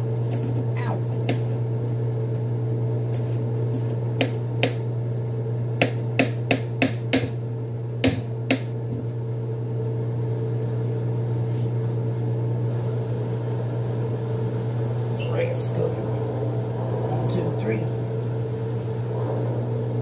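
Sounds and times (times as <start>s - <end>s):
steady low hum: 0.0s - 20.0s
knife chopping on cutting board: 5.8s - 7.4s, 8.0s - 8.7s.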